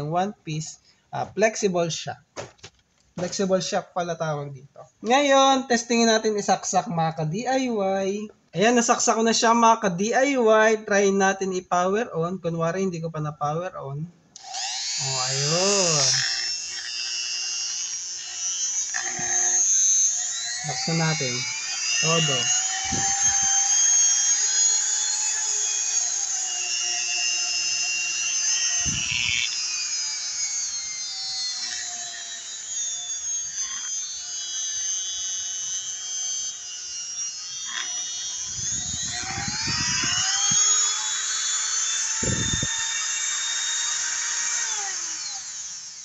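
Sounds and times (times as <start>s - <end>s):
rotary grinder motor whine: 14.4s - 46.0s.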